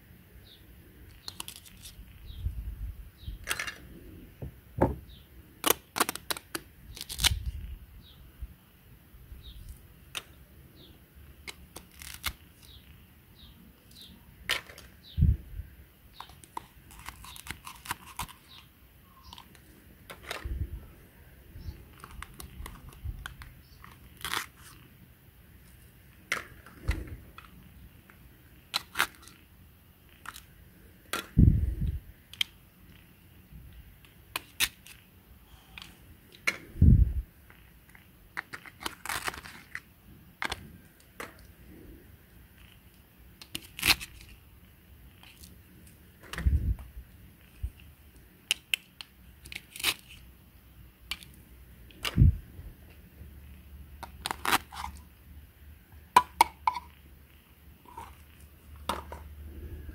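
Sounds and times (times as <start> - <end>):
dull thumps: 4.4 - 5.1
velcro tearing apart: 5.6 - 7.6, 11.5 - 12.8, 16.5 - 18.6, 23.8 - 24.8, 38.8 - 39.8, 43.6 - 44.4, 49.4 - 50.2, 54.2 - 55.0.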